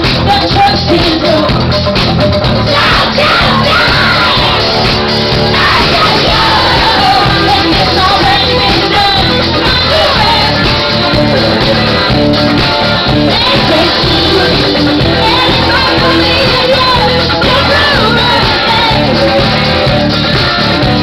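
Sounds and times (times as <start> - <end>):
woman singing: 0.0 - 1.6, 2.6 - 12.2, 13.0 - 19.9
live rock band playing: 0.0 - 21.0.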